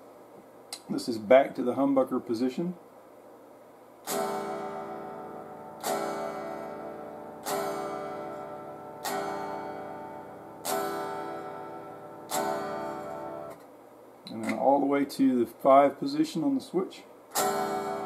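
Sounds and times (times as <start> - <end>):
electric guitar chords strummed: 4.0 - 13.6, 17.3 - 18.0.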